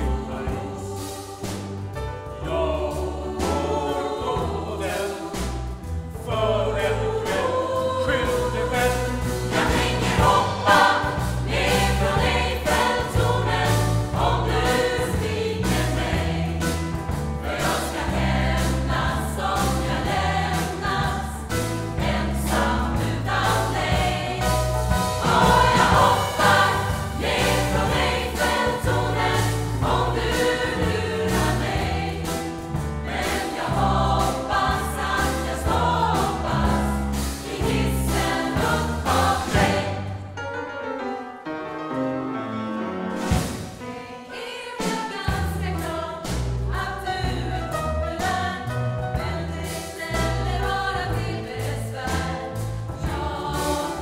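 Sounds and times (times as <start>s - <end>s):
accompaniment with bass line: 0.0s - 40.3s
mixed choir singing: 0.0s - 40.4s, 43.2s - 54.0s.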